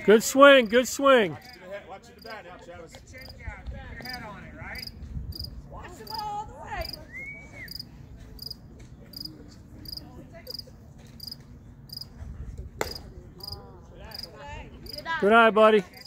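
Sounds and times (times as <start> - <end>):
crickets chirping: 4.8 - 5.5, 7.7 - 8.6, 11.2 - 12.1, 13.4 - 15.0.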